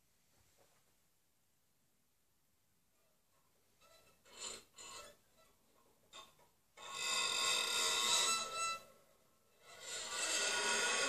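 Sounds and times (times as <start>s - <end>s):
bow squealing on harp strings: 6.8s - 8.9s.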